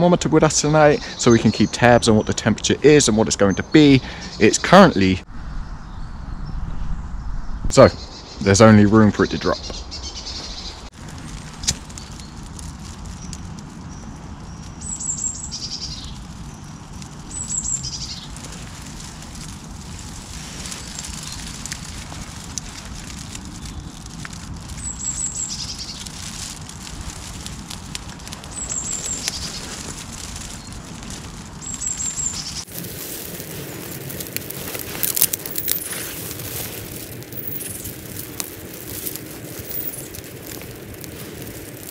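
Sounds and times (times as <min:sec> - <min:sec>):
kindling fire crackling: 0:00.0 - 0:05.3, 0:10.0 - 0:41.9
fire low rumble: 0:00.0 - 0:41.9
high falling bird call: 0:28.1 - 0:41.9.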